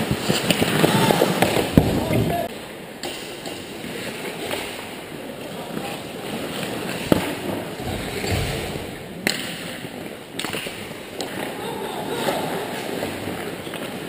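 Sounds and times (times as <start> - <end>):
hockey stick striking puck: 0.0 - 2.0, 6.9 - 11.4
skate blades scraping on ice: 0.0 - 2.3, 5.5 - 11.6.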